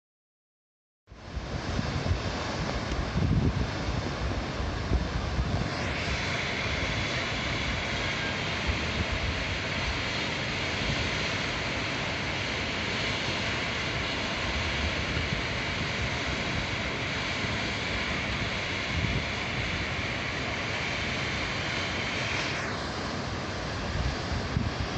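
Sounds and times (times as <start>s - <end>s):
wind gusts on microphone: 1.2s - 11.4s, 18.0s - 20.1s, 21.7s - 24.9s
river roaring in flood: 1.2s - 24.9s.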